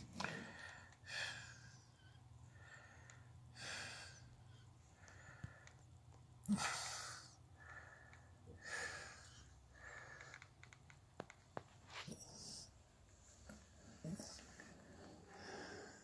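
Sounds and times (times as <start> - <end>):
soft clicks: 10.2 - 11.7.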